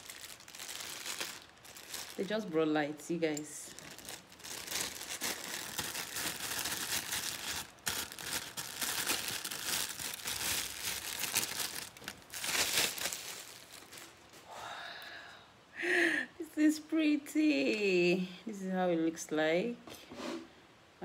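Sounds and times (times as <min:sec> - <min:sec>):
plastic packaging crinkling: 0:00.0 - 0:14.4.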